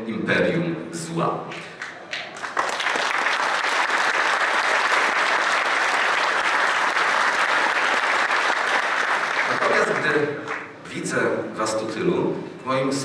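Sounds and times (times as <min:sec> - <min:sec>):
audience applause: 0:01.8 - 0:10.7.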